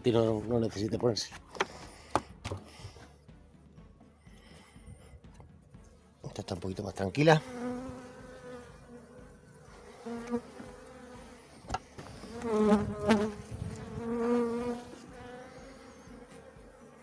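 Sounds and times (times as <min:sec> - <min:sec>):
honeybees buzzing: 0:07.1 - 0:17.0.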